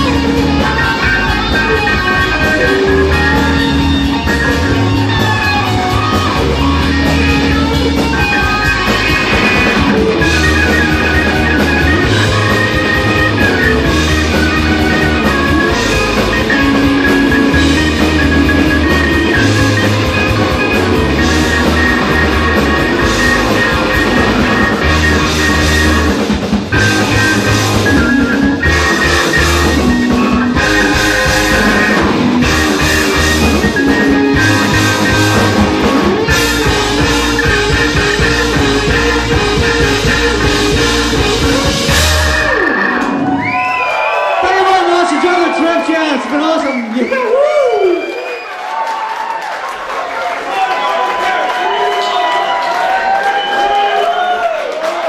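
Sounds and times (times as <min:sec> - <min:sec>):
organ: 0:00.0 - 0:43.7
live rock band playing: 0:00.0 - 0:55.0.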